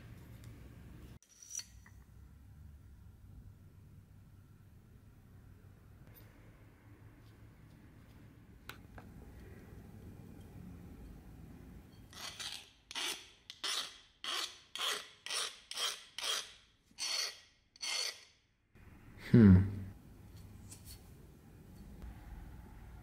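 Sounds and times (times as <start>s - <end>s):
steel rod scraping blade: 1.2s - 2.0s, 12.0s - 18.4s.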